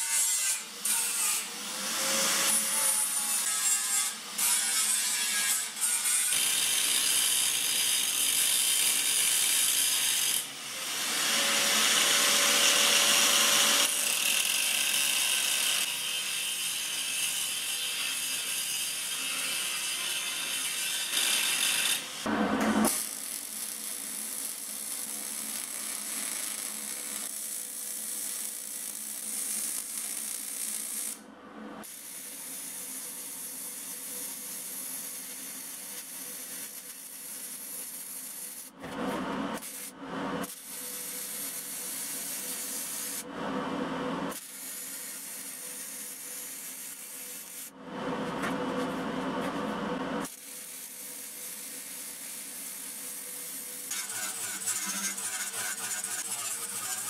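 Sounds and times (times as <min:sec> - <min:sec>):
welding arc crackling hiss: 0:20.5 - 0:31.2, 0:50.2 - 0:57.0.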